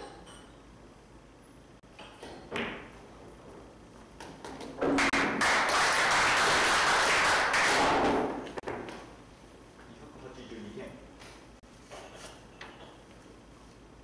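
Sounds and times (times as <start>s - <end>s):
audience applauding: 5.0s - 8.1s.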